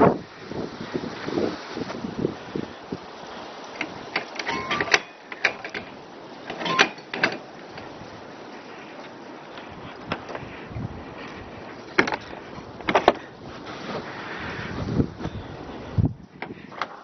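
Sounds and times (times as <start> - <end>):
metal window clicks and rattles: 3.7 - 8.0.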